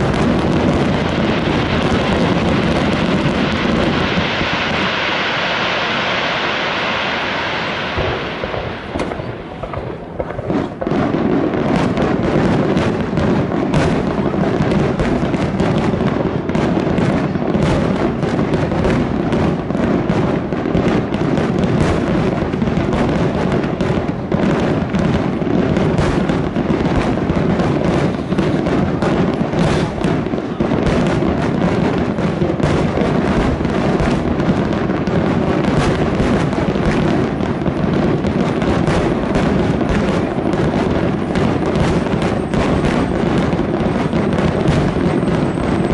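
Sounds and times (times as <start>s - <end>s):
firework hiss: 0.0s - 45.9s
firework shells bursting: 0.0s - 45.9s.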